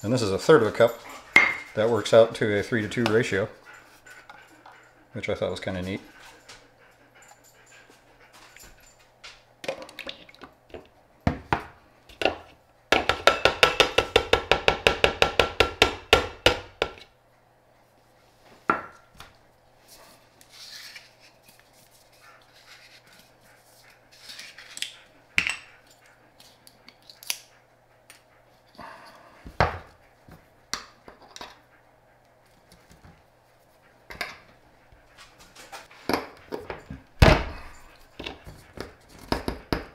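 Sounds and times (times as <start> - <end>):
tins and cups knocking and clinking: 1.4 - 1.7, 13.0 - 17.0.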